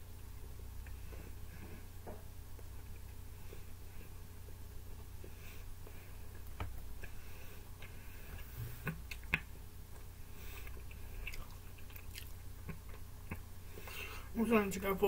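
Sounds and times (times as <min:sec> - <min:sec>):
low steady hum: 0:00.0 - 0:15.0
person chewing pizza: 0:00.2 - 0:14.2.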